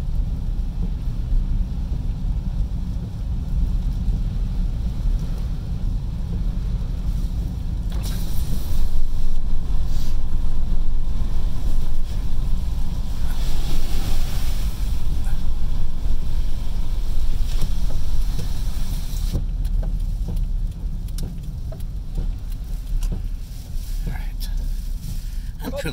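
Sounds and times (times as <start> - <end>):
heavy rain on windscreen: 0.0 - 25.9
tyres and wind rumble: 0.0 - 25.9
windscreen wipers sweeping: 0.0 - 25.9.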